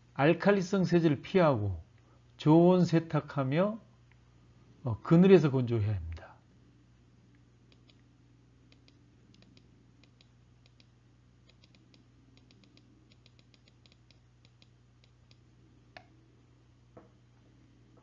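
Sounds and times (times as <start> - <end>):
low steady hum: 0.0 - 18.0
keyboard and mouse clicking: 7.7 - 8.0, 8.7 - 10.9, 11.5 - 15.4.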